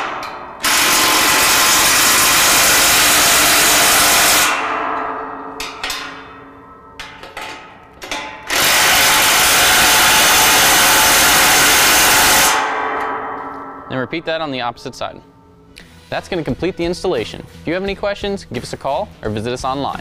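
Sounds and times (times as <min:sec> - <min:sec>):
impact driver hammering bolts: 0:00.0 - 0:06.2, 0:07.0 - 0:13.1.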